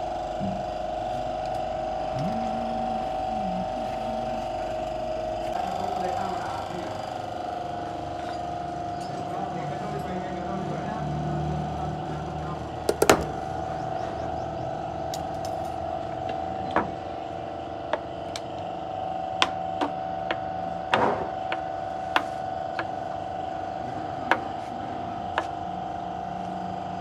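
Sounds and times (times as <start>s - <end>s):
steady hum: 0.0s - 27.0s.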